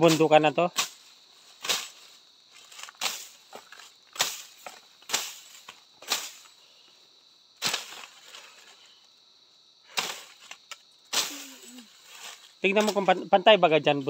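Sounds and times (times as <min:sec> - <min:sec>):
machete chopping grass: 0:00.0 - 0:02.0, 0:02.6 - 0:06.6, 0:07.6 - 0:08.4, 0:09.9 - 0:13.2.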